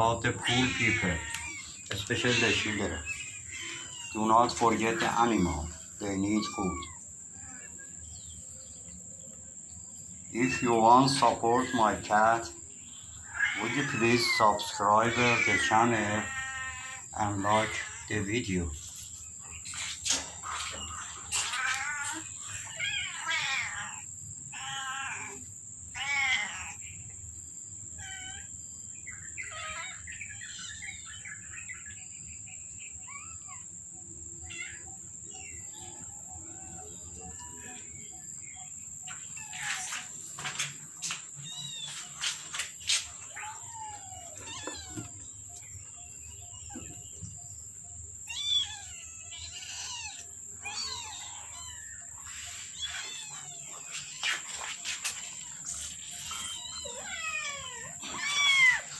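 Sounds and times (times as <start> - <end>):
kittens mewing: 0.0 - 7.9, 13.2 - 18.9, 19.7 - 26.9, 28.0 - 28.5, 29.4 - 31.0, 34.4 - 35.0, 39.3 - 40.1, 43.2 - 45.2, 48.2 - 58.9.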